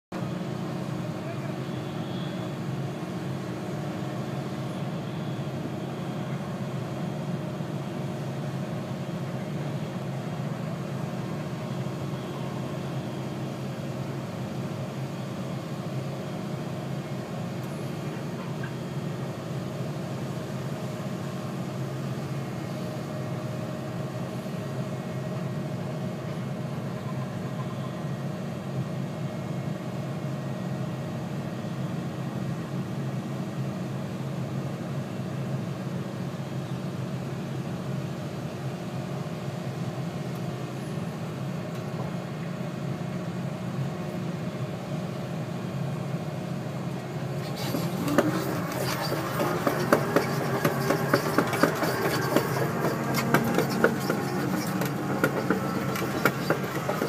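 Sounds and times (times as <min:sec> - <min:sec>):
excavator diesel engine running: 0:00.2 - 0:30.1, 0:37.8 - 0:57.0.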